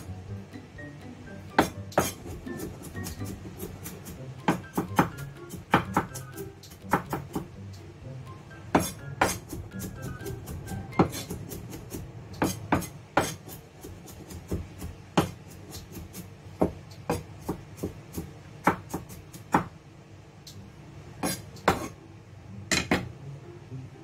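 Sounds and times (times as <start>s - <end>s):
cleaver chopping on wooden board: 1.6s - 6.2s, 8.7s - 10.2s, 11.0s - 19.7s.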